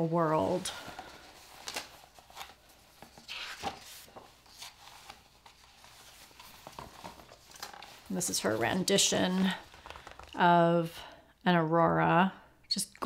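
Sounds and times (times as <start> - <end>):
books rustling and rubbing: 0.0 - 10.4.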